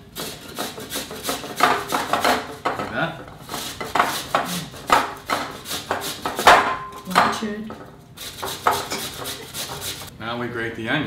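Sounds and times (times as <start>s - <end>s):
potato grating on metal grater: 0.0s - 6.6s, 8.2s - 10.1s.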